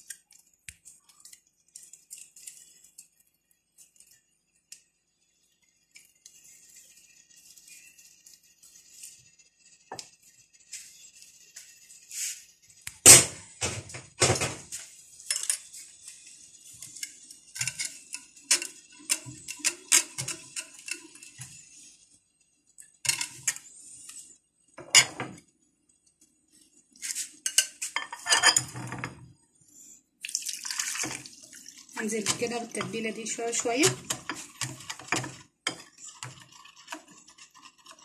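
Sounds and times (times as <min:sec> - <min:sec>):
metal whisk scraping glass bowl: 0:15.3 - 0:22.0, 0:32.0 - 0:38.0.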